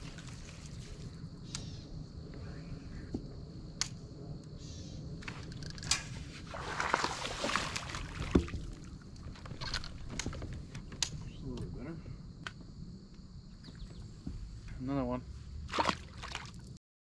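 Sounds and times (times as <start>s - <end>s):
water swishing: 6.2s - 10.1s, 15.6s - 16.8s
knocks and clicks against boat: 8.2s - 11.7s.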